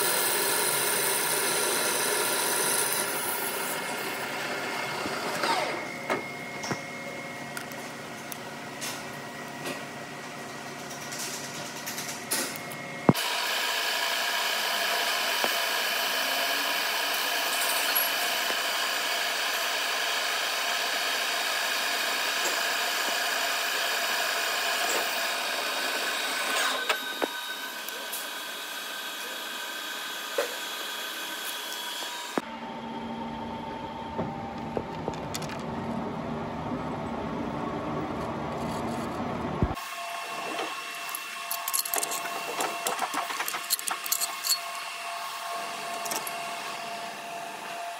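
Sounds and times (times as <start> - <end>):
metal lathe cutting steel: 0.0 - 5.9, 13.1 - 32.4, 39.7 - 47.9.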